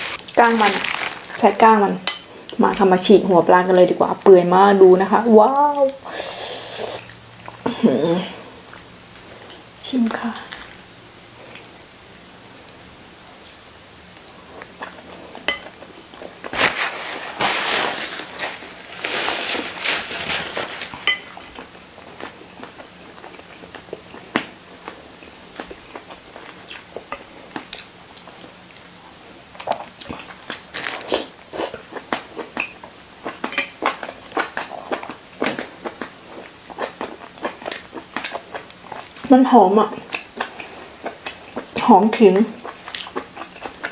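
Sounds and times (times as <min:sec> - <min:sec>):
person slurping: 0:06.0 - 0:07.2
cutlery clinking on bowl: 0:15.5 - 0:15.7, 0:21.0 - 0:21.5, 0:33.4 - 0:34.0
wet chewing and lip-smacking: 0:25.6 - 0:28.9, 0:29.6 - 0:39.3, 0:40.0 - 0:43.9.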